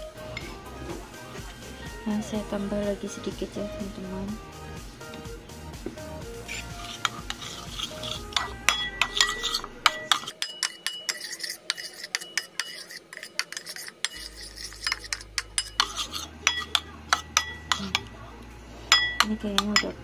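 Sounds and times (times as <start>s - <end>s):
metal spoon clinking ceramic bowl: 6.5s - 18.1s, 18.9s - 20.0s.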